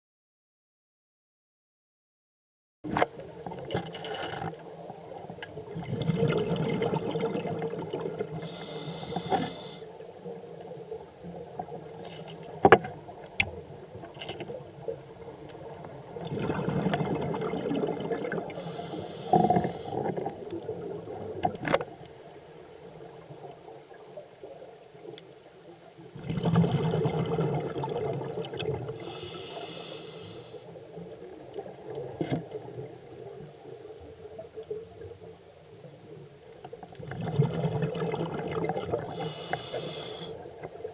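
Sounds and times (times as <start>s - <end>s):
diver breathing through regulator: 8.3s - 9.9s, 18.5s - 20.2s, 28.9s - 30.7s, 39.1s - 40.4s.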